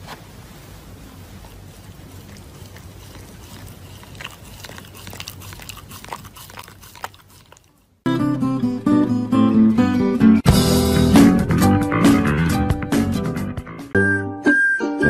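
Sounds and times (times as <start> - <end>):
low steady hum: 0.0 - 8.0
dog chewing paper: 0.9 - 8.0
guitar music: 8.1 - 14.4.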